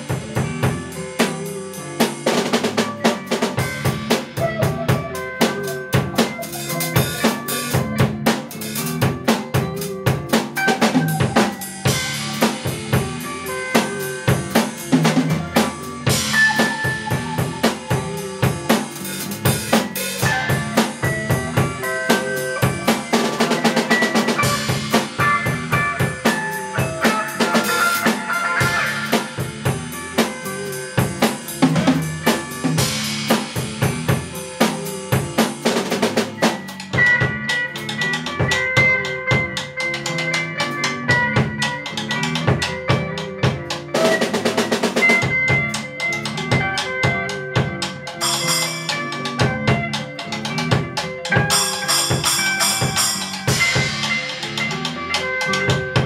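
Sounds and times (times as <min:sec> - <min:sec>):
guitar improvisation: 0:00.0 - 0:56.0
looped guitar pattern: 0:00.0 - 0:56.0
bass drum: 0:02.2 - 0:39.8.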